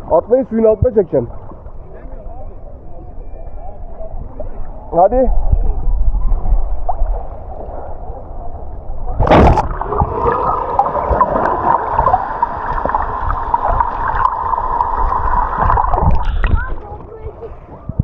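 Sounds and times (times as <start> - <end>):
sea water sloshing: 1.0 - 2.0, 4.0 - 17.8
muffled underwater bubbles: 1.3 - 16.9
loud splash: 9.1 - 16.7.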